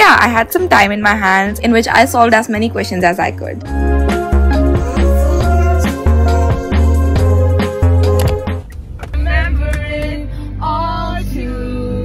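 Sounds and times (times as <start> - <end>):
music with heavy bass and beat: 3.7 - 10.0.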